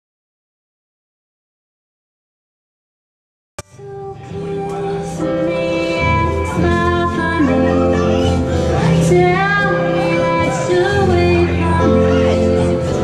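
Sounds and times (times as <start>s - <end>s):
acoustic guitar: 3.6s - 13.0s
woman singing: 3.6s - 13.0s.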